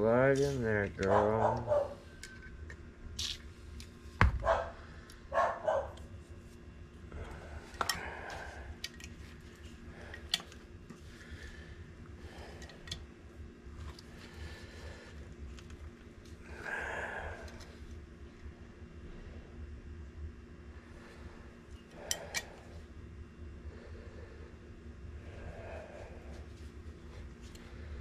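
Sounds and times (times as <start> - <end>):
dog barking: 1.1 - 2.0, 4.4 - 6.0.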